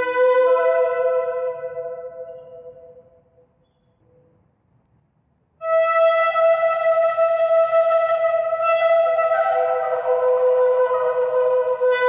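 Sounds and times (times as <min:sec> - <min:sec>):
shofar horn blast: 0:00.0 - 0:02.3, 0:05.6 - 0:12.0.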